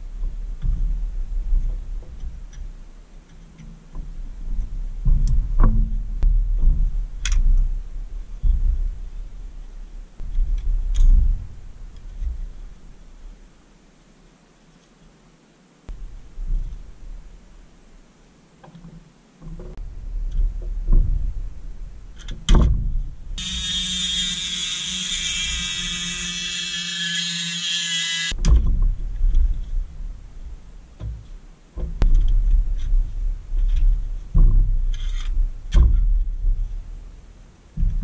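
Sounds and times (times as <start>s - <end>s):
rotary tool grinding metal: 23.4s - 28.4s.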